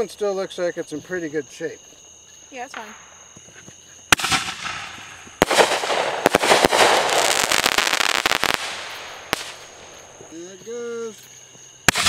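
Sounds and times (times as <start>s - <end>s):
firework bang: 4.1s - 10.3s
firework crackling: 4.1s - 10.4s.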